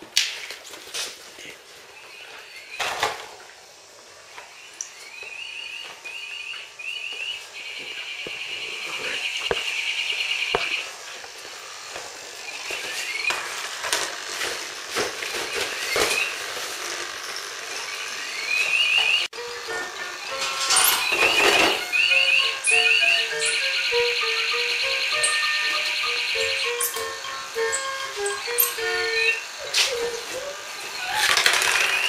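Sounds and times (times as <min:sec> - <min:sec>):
high chirping trill: 0:18.2 - 0:31.3
puppies whining and yipping: 0:20.3 - 0:32.0
claws and toys clicking on tiles: 0:31.0 - 0:32.0.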